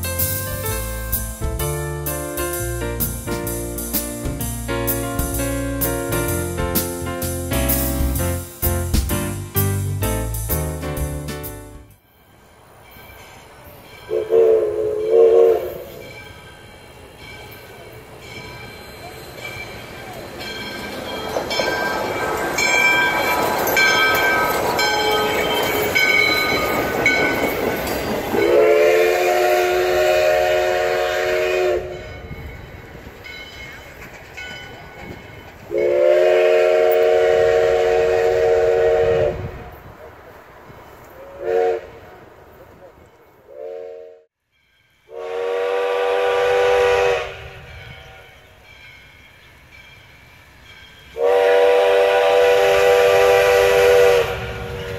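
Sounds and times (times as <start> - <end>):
steam locomotive passing: 0.0 - 54.9
wheels clattering on rails: 15.8 - 28.6, 31.9 - 35.8.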